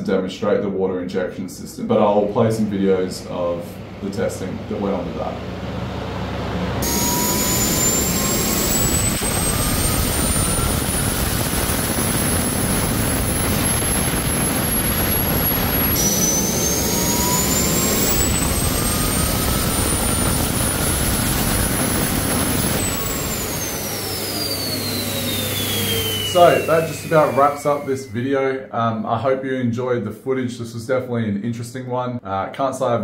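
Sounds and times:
jet engine rush and turbine whine: 0:03.1 - 0:28.2.

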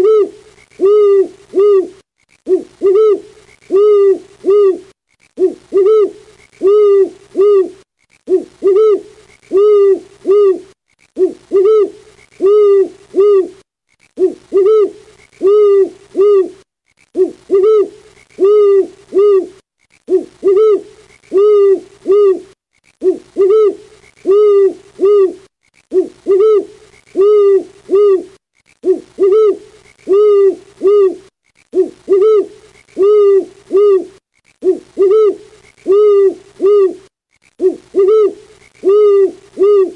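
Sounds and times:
owl hooting: 0:00.0 - 0:13.6, 0:14.2 - 0:39.9.

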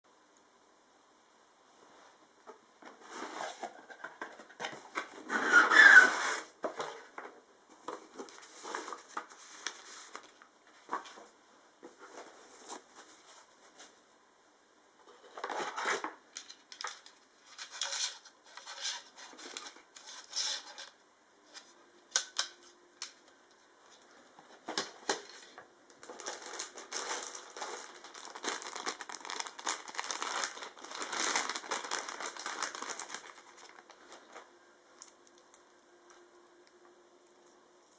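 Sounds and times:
knocks and rustles of handling: 0:01.8 - 0:05.4, 0:06.0 - 0:14.0
plastic bags crinkling: 0:25.1 - 0:34.4.

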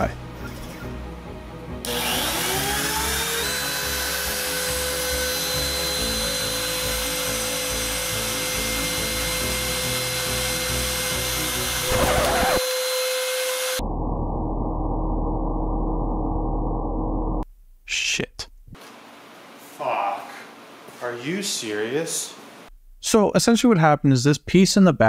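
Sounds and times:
router whining cutting wood: 0:01.8 - 0:13.8.

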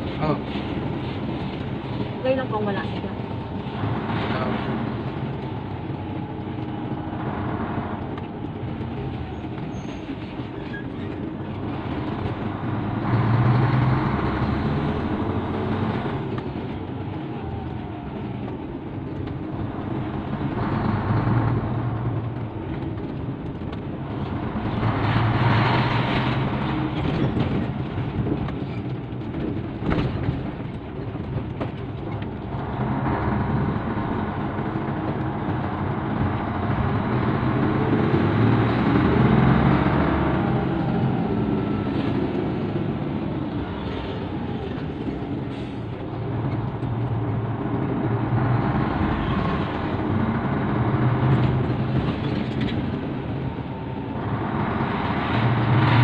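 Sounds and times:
road noise: 0:00.0 - 0:56.0
truck engine running: 0:00.0 - 0:56.0.

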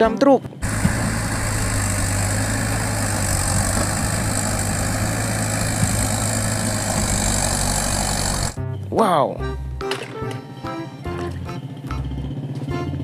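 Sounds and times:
truck engine droning: 0:00.6 - 0:08.7.

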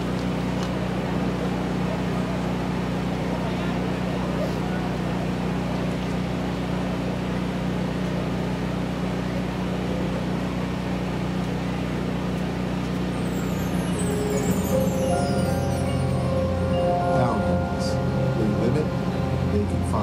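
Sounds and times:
constant low hum: 0:00.0 - 0:20.0
high shimmering chimes: 0:13.0 - 0:20.0.

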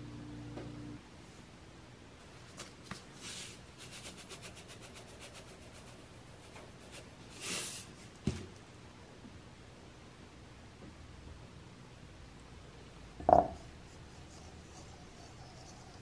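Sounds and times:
short hiss: 0:07.4 - 0:07.9.

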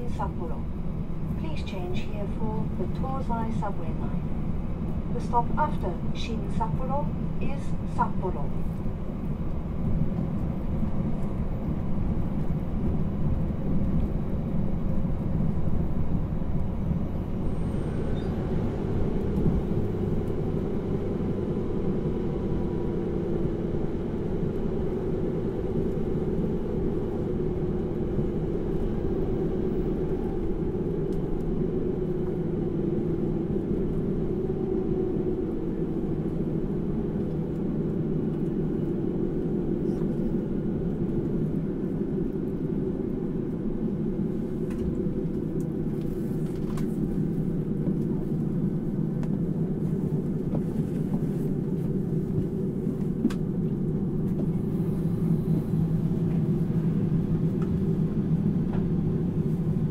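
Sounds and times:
train wheels rumbling on rails: 0:00.0 - 0:59.9.

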